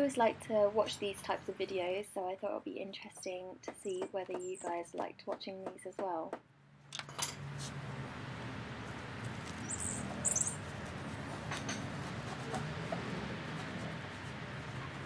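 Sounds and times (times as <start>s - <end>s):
high bird chirps: 9.6s - 10.6s.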